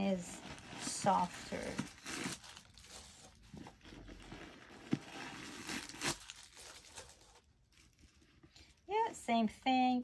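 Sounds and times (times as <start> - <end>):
paper rustling and crinkling: 0.3 - 8.3.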